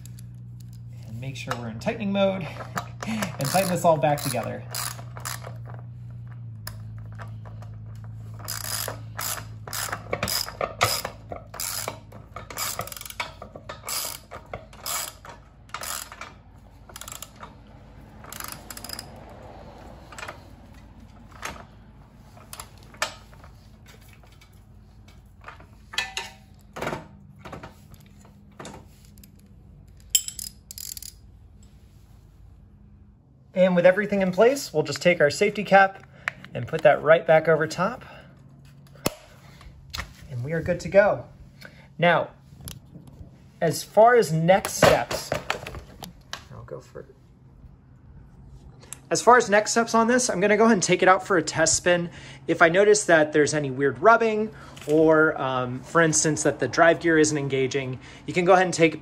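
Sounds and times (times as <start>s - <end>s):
ratchet wrench clicking: 0.0s - 0.9s, 2.6s - 5.8s, 6.6s - 19.2s, 29.0s - 31.2s.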